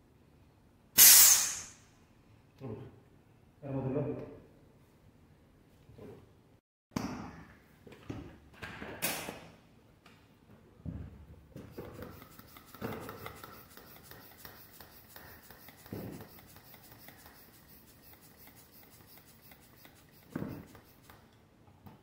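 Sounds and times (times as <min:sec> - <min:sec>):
hand tool rasping on rubber ball: 0:11.6 - 0:21.3.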